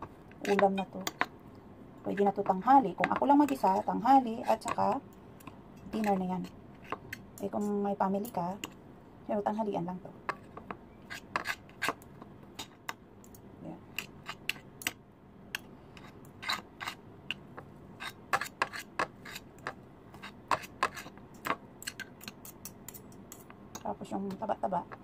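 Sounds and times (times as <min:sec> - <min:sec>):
forks scraping a plate: 0:00.4 - 0:01.2, 0:16.0 - 0:17.0, 0:18.0 - 0:21.1.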